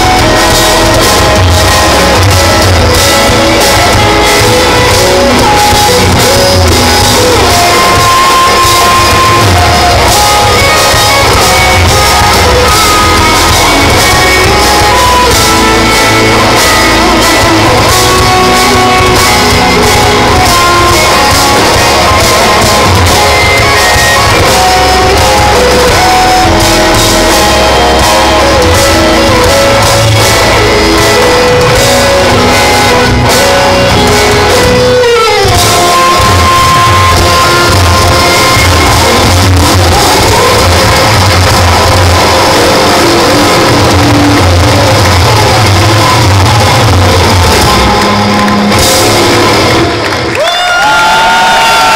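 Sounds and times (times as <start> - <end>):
drum kit: 0.0 - 51.9
electric guitars: 0.0 - 51.9
guitar note sliding down: 0.0 - 51.9.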